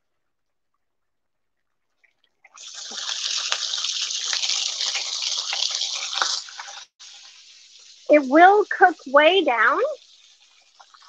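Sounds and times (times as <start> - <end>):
greens sizzling in hot oil: 2.6 - 11.0.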